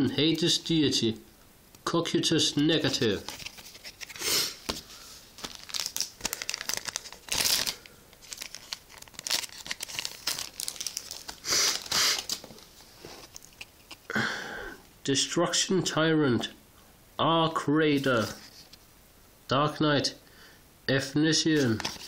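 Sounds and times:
wrapper crinkling and tearing: 0:02.8 - 0:14.1, 0:21.6 - 0:22.0.

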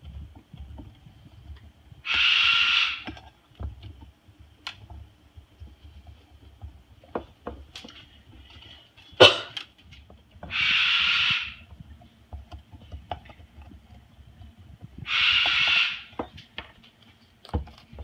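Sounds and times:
cockatoo harsh hissing calls: 0:02.0 - 0:03.1, 0:10.5 - 0:11.6, 0:15.0 - 0:16.1
beak clicking and crunching rind: 0:15.0 - 0:16.2.

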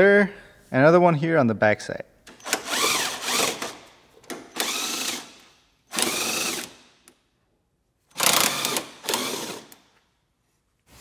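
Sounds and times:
electric impact driver hammering: 0:02.3 - 0:06.8, 0:08.1 - 0:09.8.

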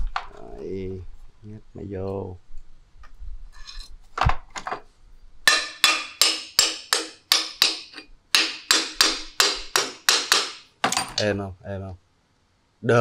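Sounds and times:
hammer striking metal: 0:05.5 - 0:11.2.

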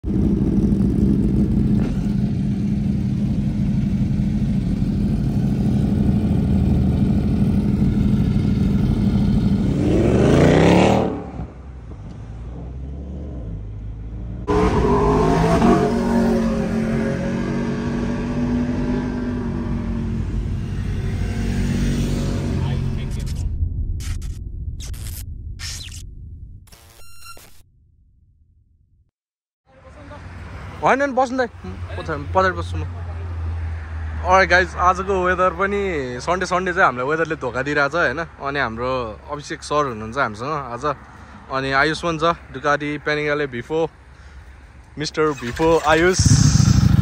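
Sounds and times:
vehicle engine revving: 0:00.0 - 0:23.4, 0:45.3 - 0:47.0.

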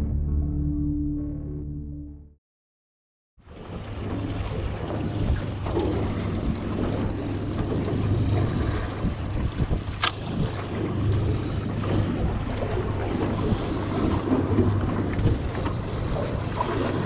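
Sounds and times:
sea washing against boat hull: 0:03.4 - 0:17.0
wind buffeting microphone: 0:03.5 - 0:17.0
steady low hum: 0:05.1 - 0:17.0
sharp click: 0:10.0 - 0:10.2.

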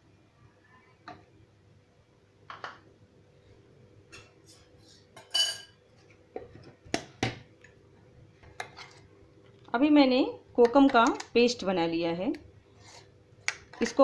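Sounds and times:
metal bowl and utensils clinking: 0:04.1 - 0:05.8
ringing metal clink: 0:05.2 - 0:05.7.

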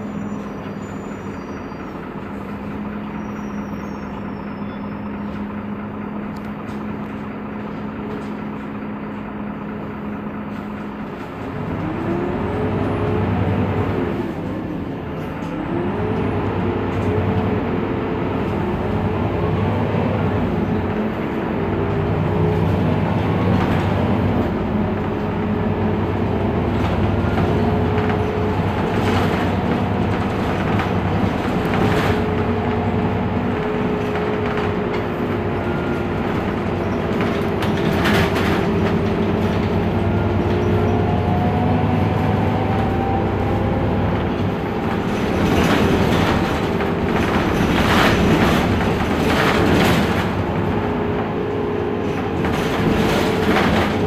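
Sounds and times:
bus engine drone: 0:00.0 - 0:54.0
drivetrain whine: 0:00.0 - 0:54.0
knocks and rattles: 0:36.2 - 0:40.0, 0:44.7 - 0:51.3, 0:52.0 - 0:54.0.

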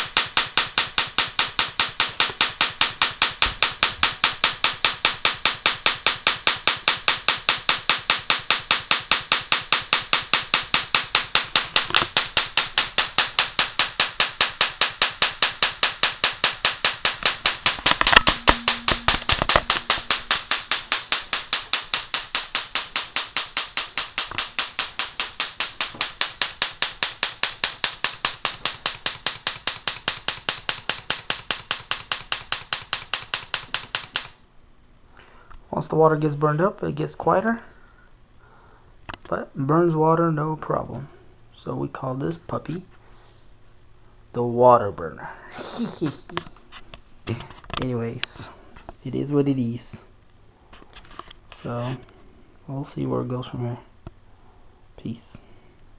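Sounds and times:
electric spark snapping: 0:00.0 - 0:34.4.

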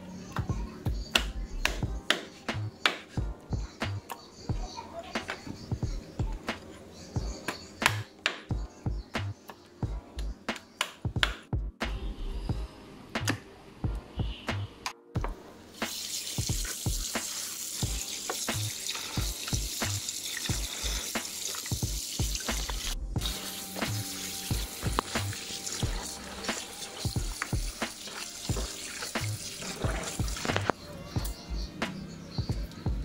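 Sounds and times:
background music with beat: 0:00.3 - 0:33.0
hands rinsing meat: 0:15.8 - 0:30.7
tap water splashing into basin: 0:26.5 - 0:30.7.

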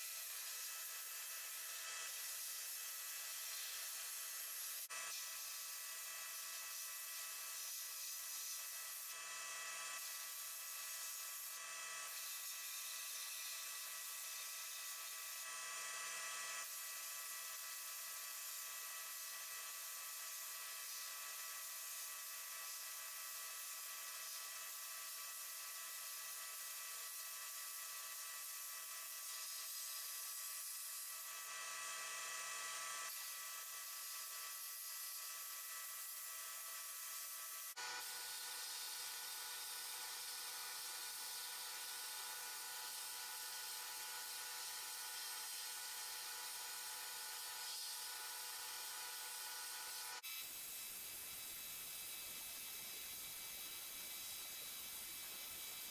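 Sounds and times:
sandblast gun hissing: 0:49.9 - 0:55.9.

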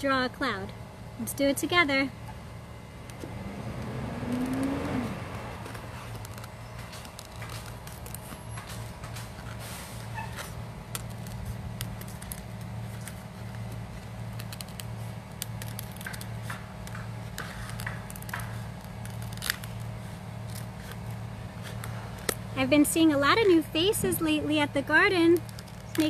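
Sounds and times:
scissors snipping dry leaf: 0:10.4 - 0:22.4, 0:25.1 - 0:26.0.

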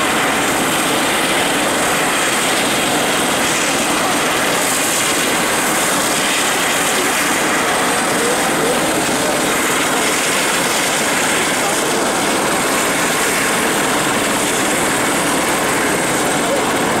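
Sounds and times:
helicopter idling: 0:00.0 - 0:17.0.

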